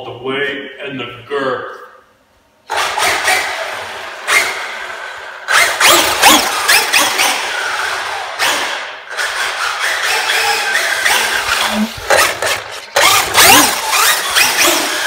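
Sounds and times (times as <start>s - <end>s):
electric motor whining: 10.4s - 15.0s.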